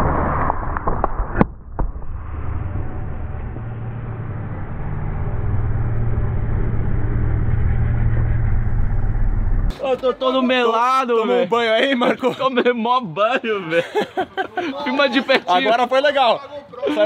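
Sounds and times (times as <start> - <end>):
road roller engine drone: 2.2 - 10.2.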